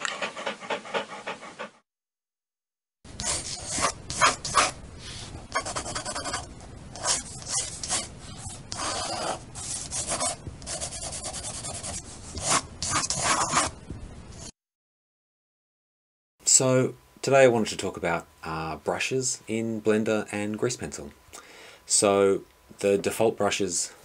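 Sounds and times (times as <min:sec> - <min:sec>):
pencil scribbling on paper: 0:00.0 - 0:01.8, 0:03.2 - 0:04.8, 0:05.5 - 0:13.8.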